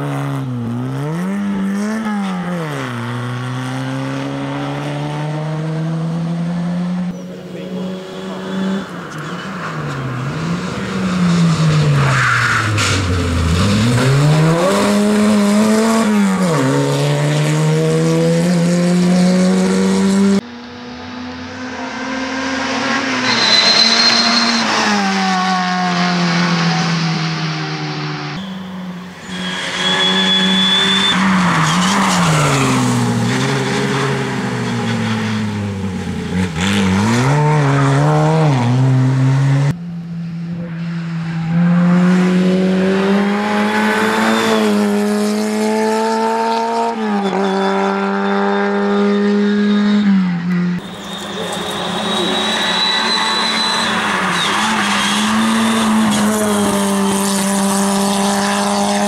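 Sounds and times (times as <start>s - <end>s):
rally car engine revving: 0.0s - 59.0s
tyre squeal: 22.7s - 27.3s, 28.3s - 35.7s, 43.6s - 45.1s, 46.4s - 50.2s, 50.8s - 59.0s.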